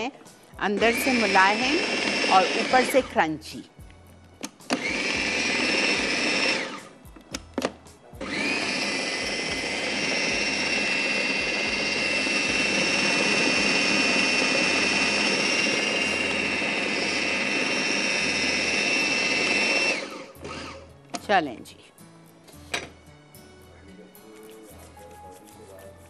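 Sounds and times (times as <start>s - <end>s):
food processor motor whining: 0.7s - 3.1s, 4.5s - 6.9s, 8.2s - 20.8s.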